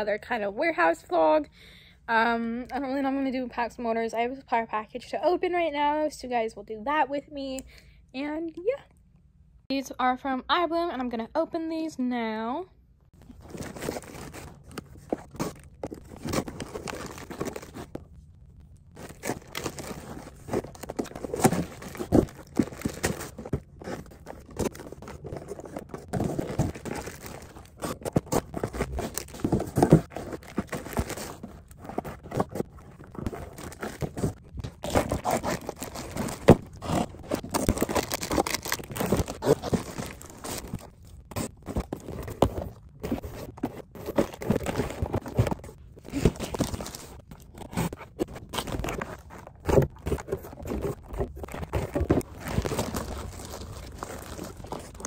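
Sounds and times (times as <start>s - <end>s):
cardboard scraping: 13.2s - 18.2s, 18.9s - 55.0s
plastic bags ripping: 18.9s - 55.0s.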